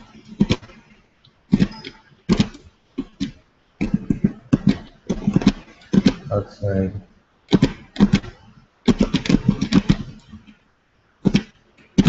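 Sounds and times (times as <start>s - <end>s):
computer clicks and taps: 1.5s - 6.3s, 7.5s - 10.6s, 11.2s - 12.0s.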